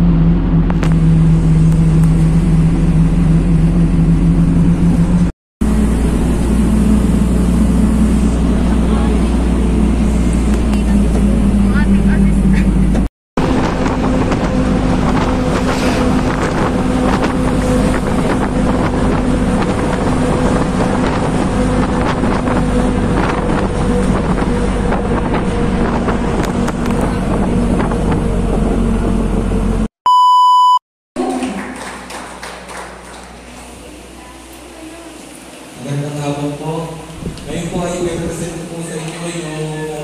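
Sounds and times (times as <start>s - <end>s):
vehicle engine and road noise: 0.0s - 29.9s
short electronic beep: 30.1s - 30.8s.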